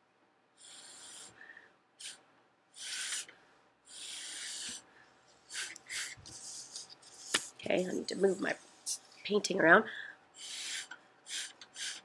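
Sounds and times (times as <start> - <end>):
breath blown through a straw: 0.6 - 2.2, 2.8 - 4.8, 5.5 - 6.5, 10.4 - 12.0.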